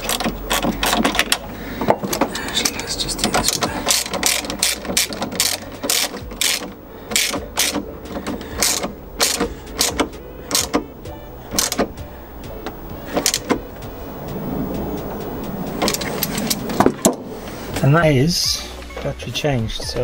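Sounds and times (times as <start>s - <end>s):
socket ratchet clicking: 3.5s - 10.9s.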